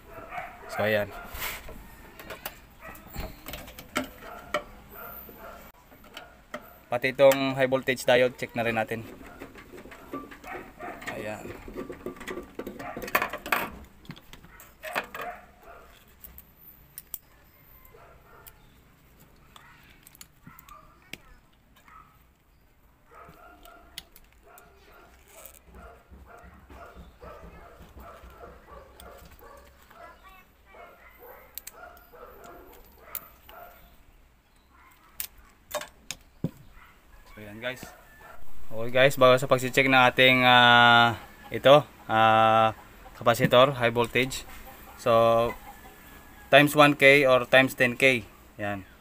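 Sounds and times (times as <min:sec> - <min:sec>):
clicks of small parts handled: 0:15.9 - 0:17.3, 0:19.2 - 0:21.9, 0:31.5 - 0:33.6.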